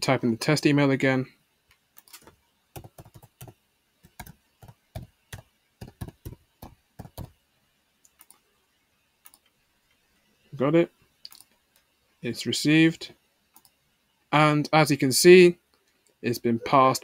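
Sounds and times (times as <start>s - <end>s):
computer keyboard typing: 2.0s - 7.4s, 8.1s - 8.4s, 9.2s - 9.4s.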